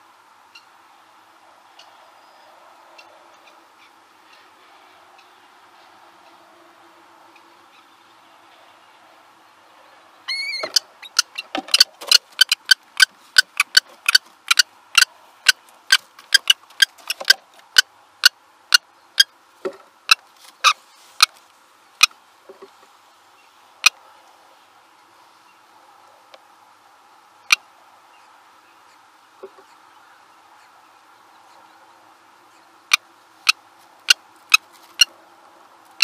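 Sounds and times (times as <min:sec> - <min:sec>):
kestrel high call: 0:10.2 - 0:11.4.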